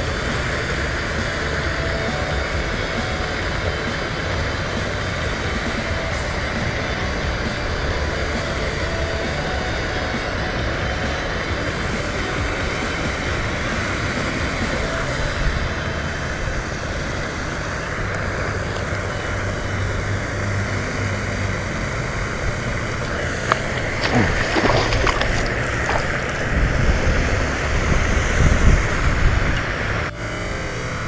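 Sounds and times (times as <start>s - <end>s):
wind buffeting microphone: 22.2s - 30.1s.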